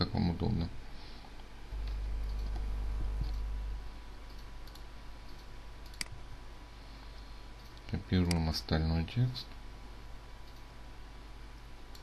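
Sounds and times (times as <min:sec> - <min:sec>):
low hum: 0:00.2 - 0:08.1
computer mouse clicking: 0:01.8 - 0:03.4, 0:04.2 - 0:06.2, 0:10.4 - 0:10.7.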